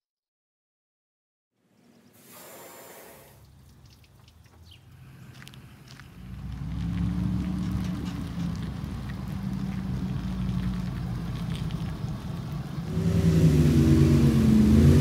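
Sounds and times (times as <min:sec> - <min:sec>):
short rush of noise: 0:02.2 - 0:03.4.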